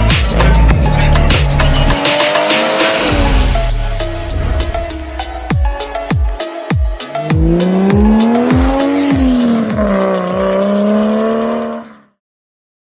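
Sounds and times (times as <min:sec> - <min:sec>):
music with heavy kick drum: 0:00.0 - 0:11.0
car engine accelerating hard: 0:00.3 - 0:03.6, 0:07.2 - 0:12.1.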